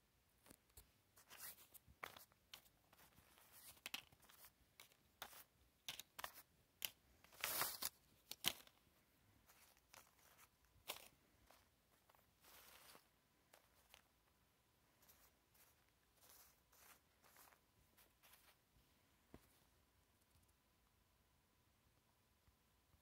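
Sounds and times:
toy miniatures rustling: 0:00.4 - 0:18.7.

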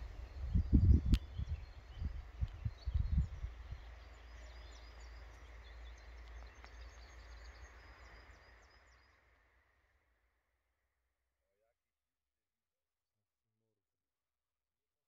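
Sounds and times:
wind rumble on microphone: 0:00.0 - 0:08.7
distant small birds chirping: 0:00.0 - 0:10.0.

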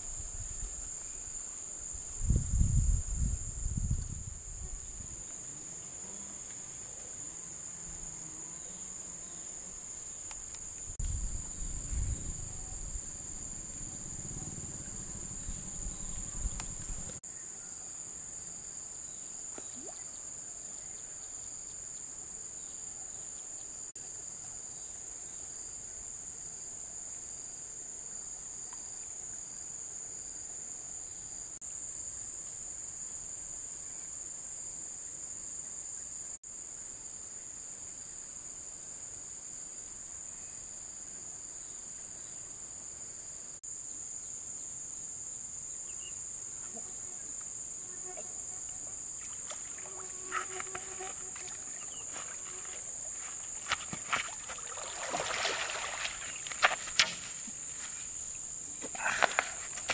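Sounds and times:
insects singing: 0:45.6 - 0:59.9.

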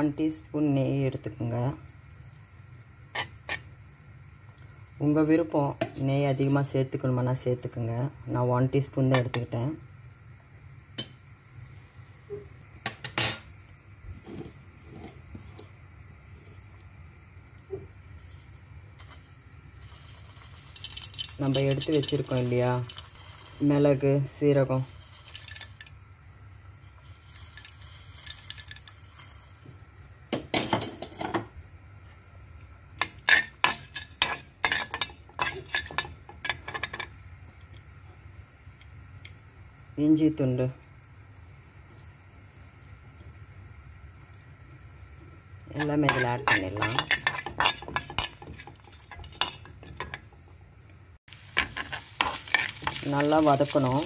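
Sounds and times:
light sizzle: 0:00.0 - 0:54.0
metal spoon scraping and clinking: 0:18.2 - 0:23.8, 0:26.9 - 0:29.6, 0:33.0 - 0:37.0, 0:45.8 - 0:50.2, 0:51.6 - 0:54.0
metal spoon clinking on pan: 0:46.1 - 0:50.2.

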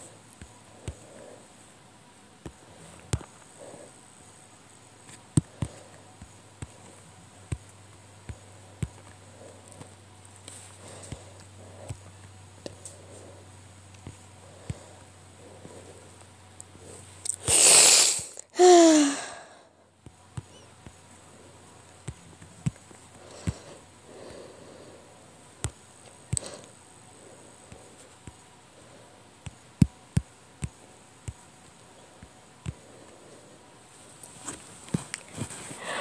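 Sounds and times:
person breathing out loudly: 0:17.4 - 0:19.7, 0:35.8 - 0:36.0.

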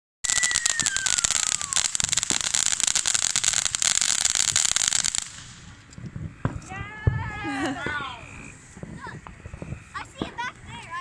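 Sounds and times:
falling firework whistle: 0:00.2 - 0:03.4
firework fountain hissing and crackling: 0:00.2 - 0:11.0.

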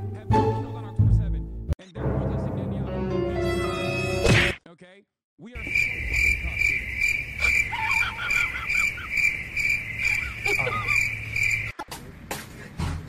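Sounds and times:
crickets chirping: 0:05.6 - 0:11.8.

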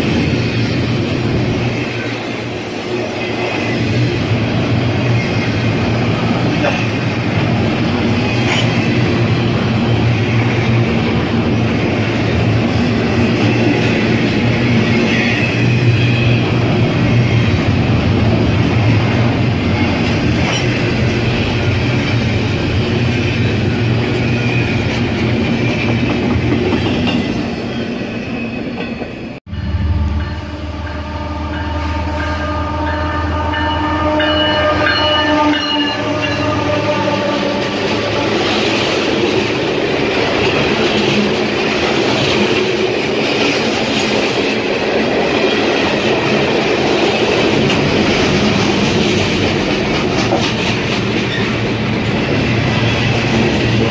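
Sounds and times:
freight train wheels on rails: 0:00.0 - 0:53.9
locomotive air horn: 0:29.5 - 0:38.4.

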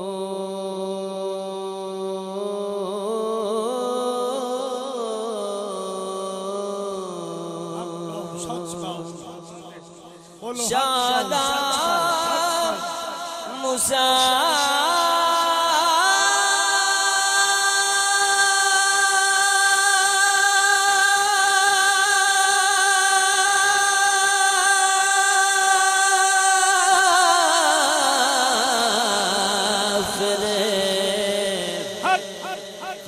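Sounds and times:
man singing unaccompanied: 0:00.0 - 0:33.0.

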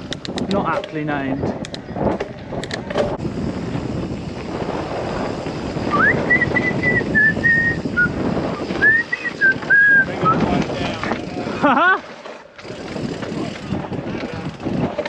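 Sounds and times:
wind on microphone: 0:00.0 - 0:12.0, 0:12.6 - 0:15.0
bike tyres rumbling on dirt: 0:00.0 - 0:15.0
thin high whistle-like tone: 0:05.9 - 0:10.1.

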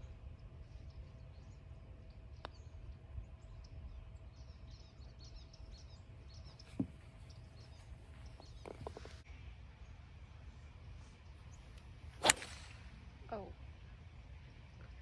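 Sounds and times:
birds chirping: 0:00.0 - 0:09.2.

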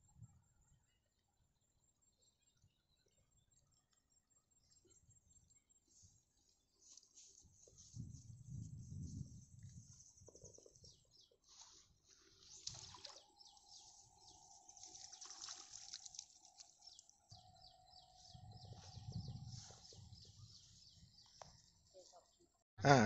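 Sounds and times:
soft low rumbles: 0:18.3 - 0:21.1.

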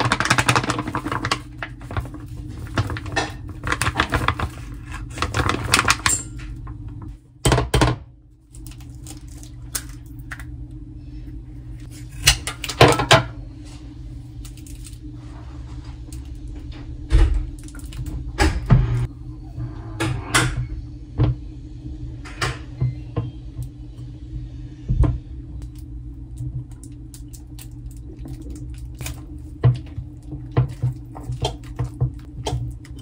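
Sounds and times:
plastic packet crinkling: 0:00.0 - 0:06.1
low hum: 0:08.1 - 0:33.0.

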